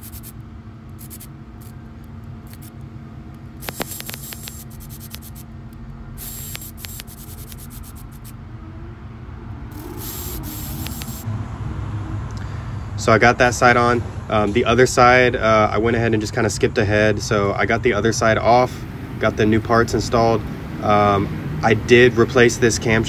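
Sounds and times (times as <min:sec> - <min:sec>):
electric ratchet running: 0:00.0 - 0:01.8, 0:02.4 - 0:02.8, 0:03.6 - 0:05.5, 0:06.2 - 0:08.4, 0:09.7 - 0:11.3
steady low hum: 0:00.0 - 0:23.0.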